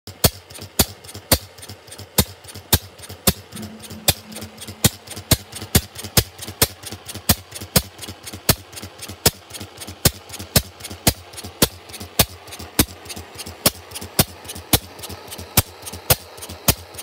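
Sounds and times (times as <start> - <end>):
light engine ticks: 0.1 - 3.6, 7.5 - 17.0
oil engine firing beats: 3.4 - 6.4.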